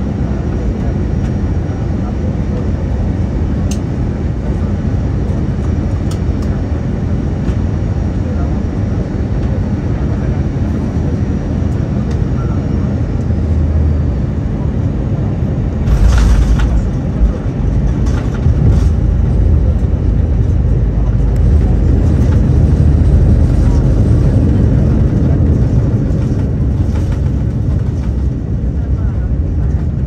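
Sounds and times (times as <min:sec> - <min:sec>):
aircraft cabin rumble: 0:00.0 - 0:30.0
tyres rumbling on runway: 0:00.1 - 0:30.0
reverse thrust roar: 0:15.6 - 0:30.0.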